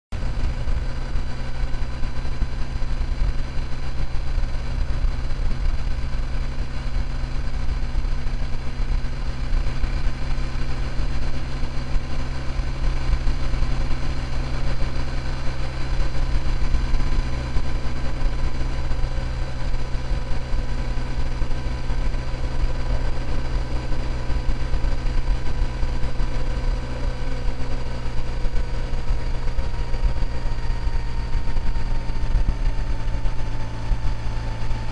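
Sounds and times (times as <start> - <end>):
heavy low rumble: 0.1 - 34.9
vehicle engine running: 0.1 - 34.9.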